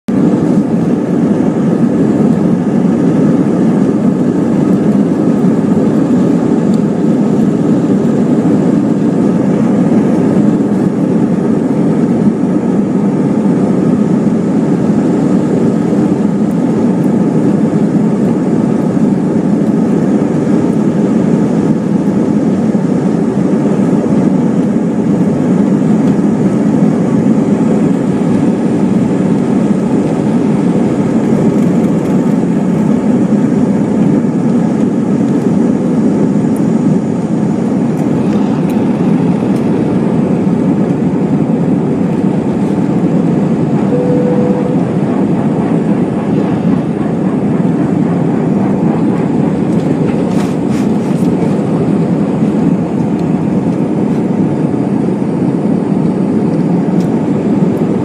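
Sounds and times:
jet engine cabin rumble: 0.1 - 58.0.

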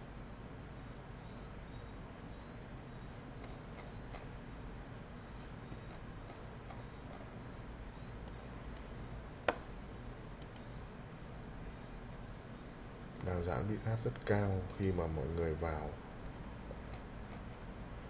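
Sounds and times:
low steady hum: 0.0 - 18.0
computer mouse clicks: 3.4 - 4.3, 5.8 - 7.4, 8.2 - 8.9, 10.4 - 10.8.

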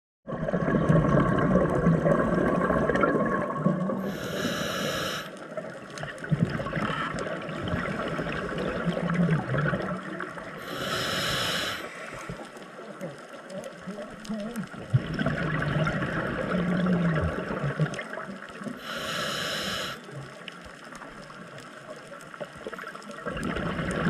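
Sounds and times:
bubbling exhalation underwater: 0.3 - 4.5, 6.2 - 10.9, 14.4 - 18.9, 23.2 - 24.0
regulator inhalation hiss: 4.0 - 5.4, 10.6 - 12.4, 18.8 - 20.1.

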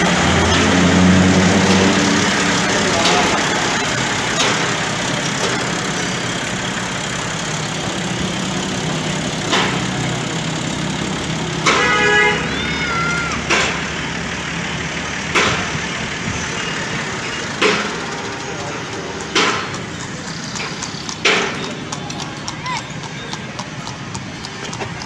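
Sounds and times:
engine knocks: 0.0 - 25.0
tractor diesel engine idling: 0.0 - 25.0
horn toot: 11.6 - 13.0.

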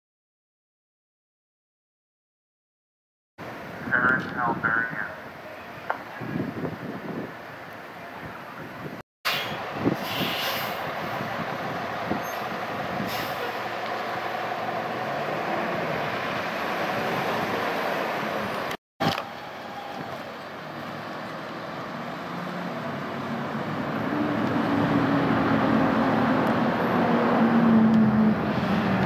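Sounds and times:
road traffic passing: 3.4 - 29.0
vehicle engine drone passing by: 10.8 - 18.7, 19.4 - 29.0.

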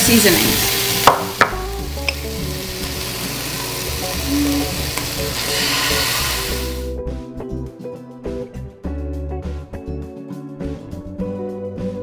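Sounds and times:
onions sizzling in a skillet: 0.0 - 7.0.

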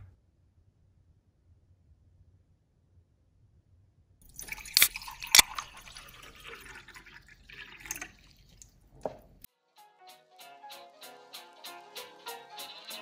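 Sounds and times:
water pouring into a cup: 4.3 - 9.5.

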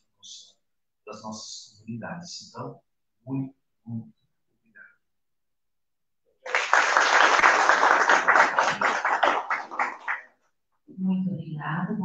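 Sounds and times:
small group applauding: 6.4 - 10.5.

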